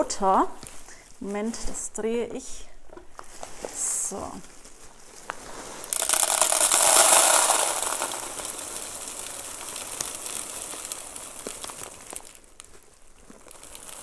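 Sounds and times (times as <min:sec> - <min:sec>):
grains pouring into a plastic planter: 0:05.4 - 0:14.0
single stones ticking: 0:05.9 - 0:14.0.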